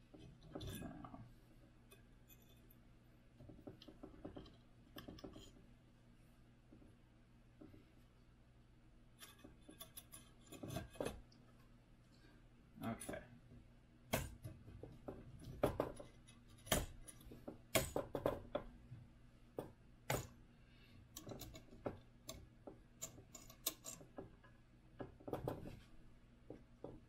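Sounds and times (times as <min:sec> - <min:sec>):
clicks and taps of small parts: 0:21.2 - 0:25.7.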